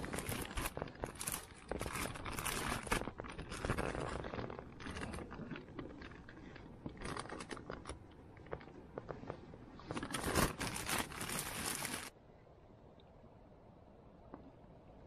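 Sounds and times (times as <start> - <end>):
rustling and scraping of cooking kit: 0.0 - 12.1.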